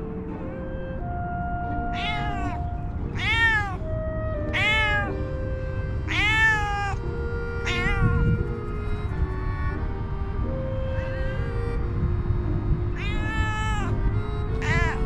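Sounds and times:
cat meowing: 1.8 - 5.2, 6.1 - 8.7, 13.0 - 15.0.

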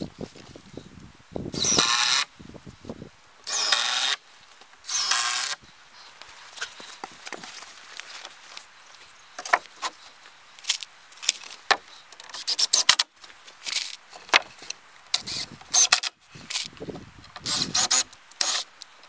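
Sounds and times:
cordless drill driving into wood: 1.6 - 2.3, 3.5 - 4.2, 4.9 - 5.6, 17.4 - 18.7
wooden boards scraping and knocking: 9.4 - 10.0, 13.7 - 14.7.

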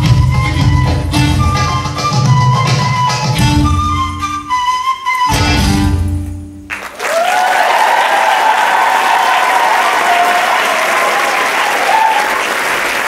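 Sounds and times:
audience applauding and cheering: 6.7 - 13.0
long high cries: 7.0 - 12.5.

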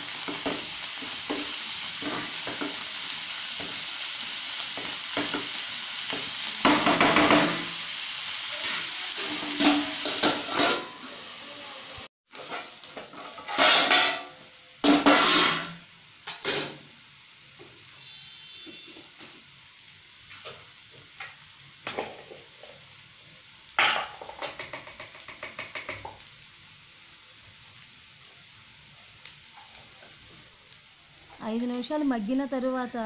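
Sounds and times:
greens sizzling in a frying pan: 0.0 - 33.0
steel lid clanking on pan: 9.2 - 11.0, 12.5 - 15.7.

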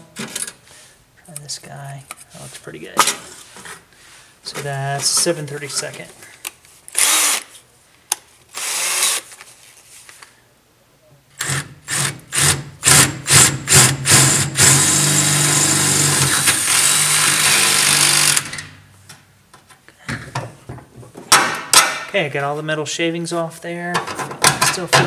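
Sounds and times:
power drill cutting into sheet steel: 7.0 - 7.5, 8.6 - 9.3, 11.4 - 18.6.

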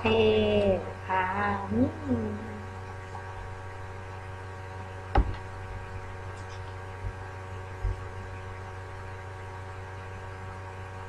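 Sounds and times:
electrical hum: 0.0 - 11.0
sharp knock: 5.2 - 5.4.

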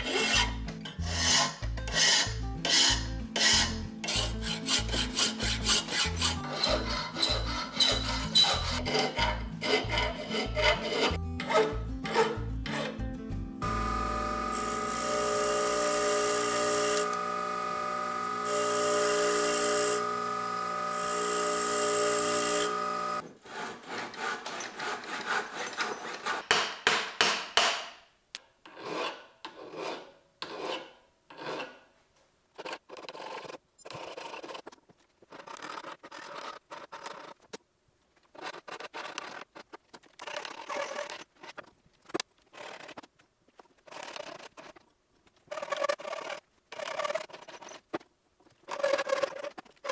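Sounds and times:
hand file rasping on steel: 0.0 - 13.0, 23.4 - 26.6
bench grinder motor whine: 13.6 - 23.2
knife hissing on grinding wheel: 13.6 - 23.2.

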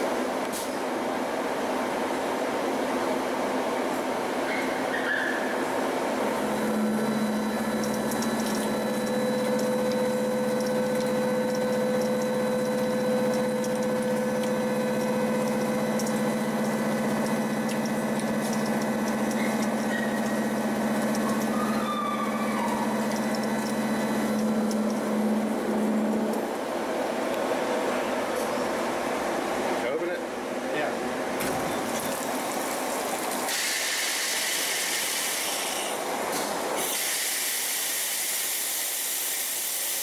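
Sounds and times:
milling machine whine: 5.7 - 29.8
spraying coolant: 6.3 - 26.4, 31.4 - 36.1, 36.8 - 40.0
metal chips ticking: 7.3 - 21.5.

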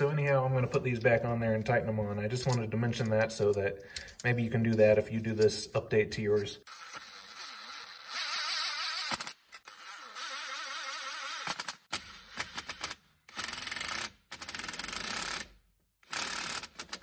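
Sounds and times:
hand ratchet clicking rapidly: 12.8 - 17.0.

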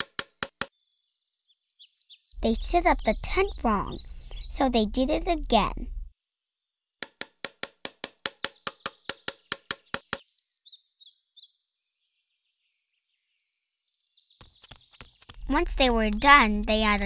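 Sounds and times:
rapid hammering knocks: 0.0 - 0.7, 7.0 - 10.2.

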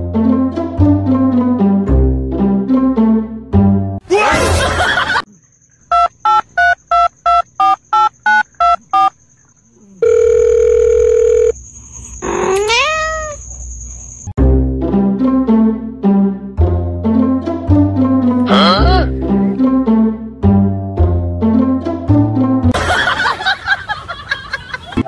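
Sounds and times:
cat meowing: 12.2 - 13.4.

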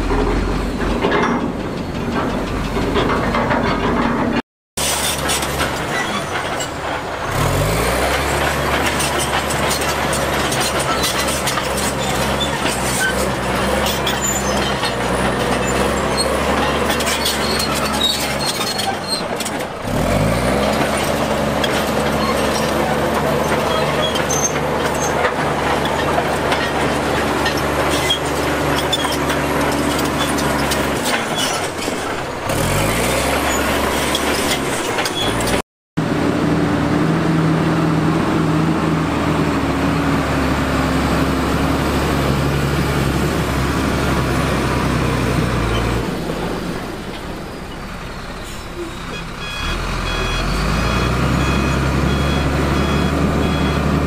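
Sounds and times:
heavy diesel engine revving: 6.8 - 31.1, 32.4 - 54.0.

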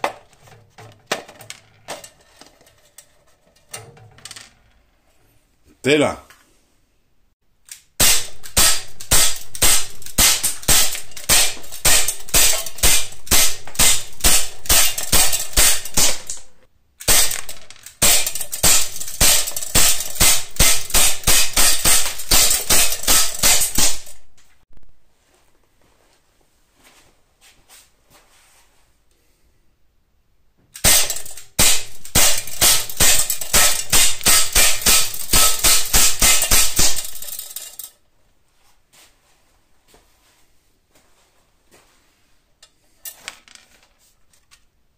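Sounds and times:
bb pistol rapid fire: 7.9 - 24.2, 30.8 - 37.6
bbs striking steel trap: 8.0 - 24.3, 30.8 - 37.9.

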